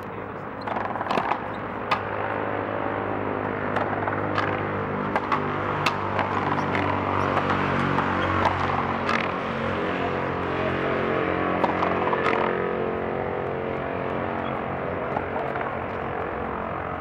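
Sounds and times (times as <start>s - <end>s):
steady mechanical drone: 0.0s - 17.0s
sharp knocks: 0.6s - 2.4s, 3.4s - 9.7s.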